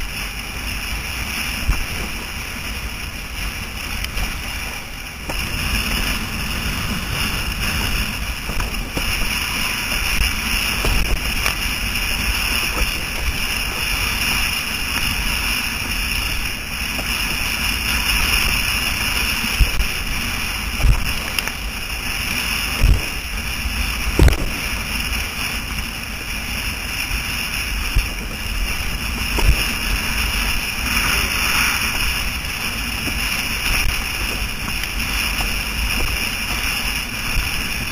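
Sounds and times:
water rushing: 0:00.0 - 0:37.9
wind noise on microphone: 0:00.0 - 0:37.9
dull thumps: 0:24.1 - 0:24.9.

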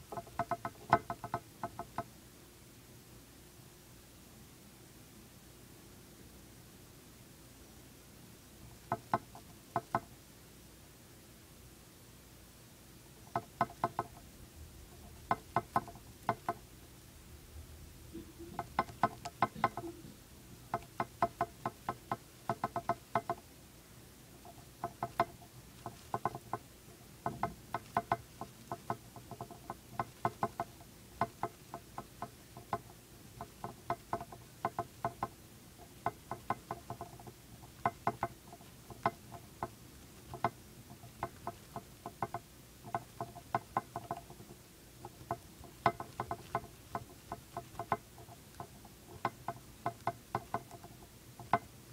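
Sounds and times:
hamster gnawing crunching clicks: 0:00.0 - 0:02.0, 0:14.9 - 0:16.7, 0:18.2 - 0:20.0, 0:20.7 - 0:23.4, 0:24.4 - 0:51.9.

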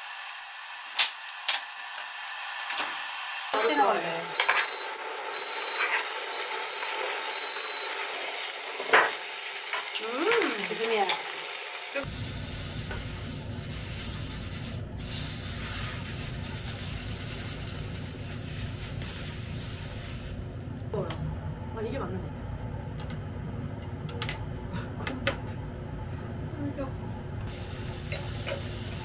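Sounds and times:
food sizzling on a grill tray: 0:03.6 - 0:20.4, 0:27.5 - 0:29.0.

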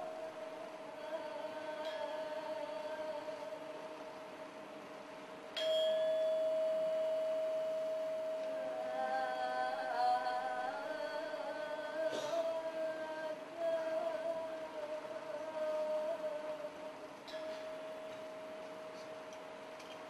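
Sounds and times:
steady held tone: 0:05.5 - 0:19.1
metal bell struck ringing: 0:05.6 - 0:08.4.

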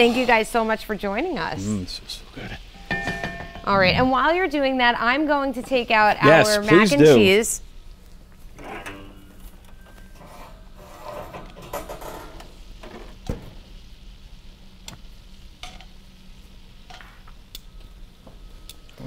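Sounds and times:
sauce sizzling: 0:00.0 - 0:08.6, 0:12.2 - 0:18.6
metal tongs clinking against pot: 0:02.8 - 0:03.7.

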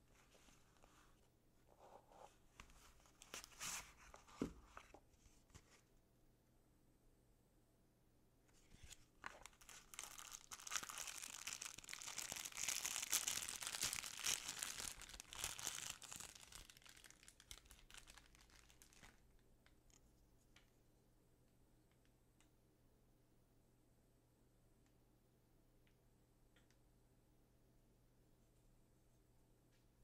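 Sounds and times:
packaging crinkling and tearing: 0:08.7 - 0:20.0.

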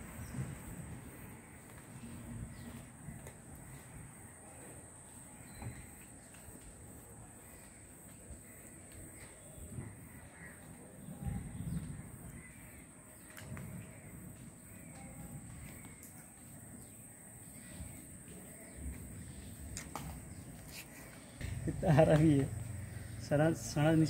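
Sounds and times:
faint crow caws: 0:07.4 - 0:24.0.

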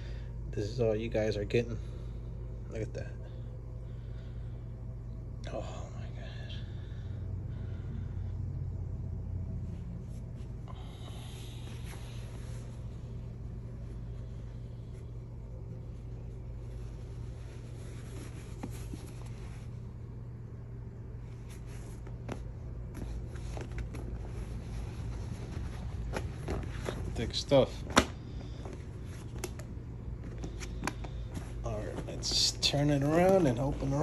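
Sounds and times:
steady low hum: 0:00.0 - 0:34.0
leather jacket rustling: 0:21.4 - 0:27.8.

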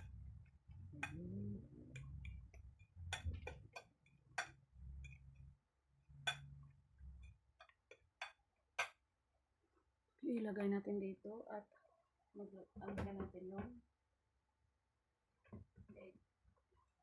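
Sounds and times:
fork clinking on ceramic plate: 0:02.0 - 0:05.2.

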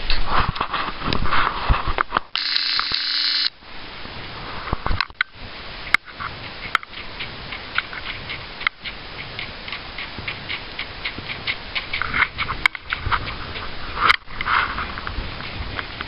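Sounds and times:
horse hoofbeats on gravelly ground: 0:06.2 - 0:14.0.

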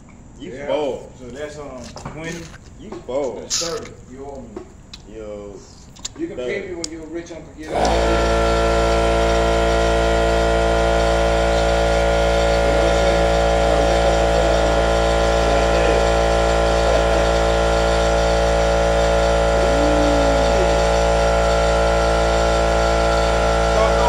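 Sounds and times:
loud steady machine hum: 0:07.5 - 0:24.0
faint wavering voice: 0:19.6 - 0:20.8.

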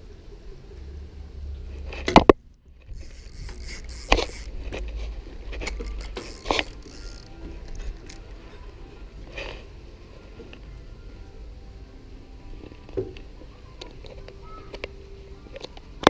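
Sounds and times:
fishing reel cranking: 0:02.9 - 0:04.8, 0:05.5 - 0:08.3.

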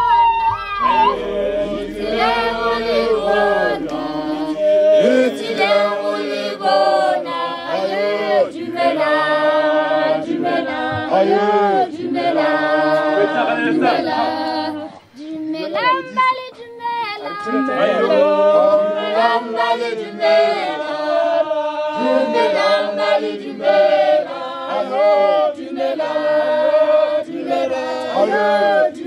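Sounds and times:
group singing unaccompanied: 0:00.0 - 0:29.0.

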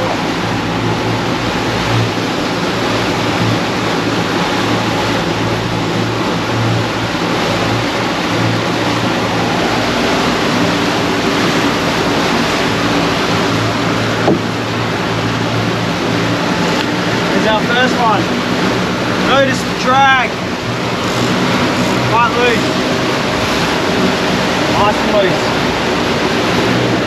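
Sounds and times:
outboard motor humming: 0:00.0 - 0:27.0
rushing wake and sea: 0:00.0 - 0:27.0
short knock: 0:14.2 - 0:14.5.

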